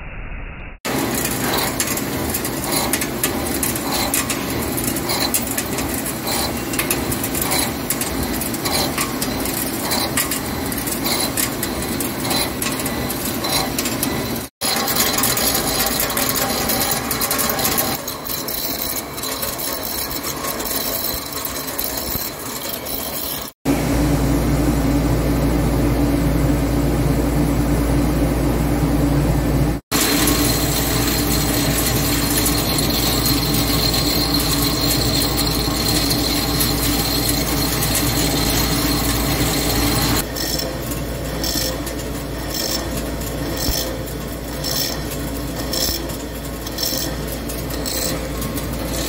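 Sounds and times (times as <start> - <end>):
lathe cutting metal: 0.9 - 23.6, 29.9 - 49.0
low machine hum: 23.7 - 43.6.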